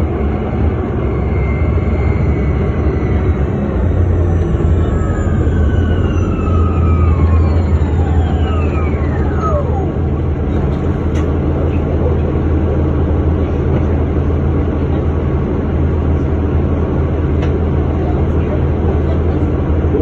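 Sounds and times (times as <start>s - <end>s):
bus engine droning: 0.0s - 20.0s
falling electric whine: 0.7s - 10.4s.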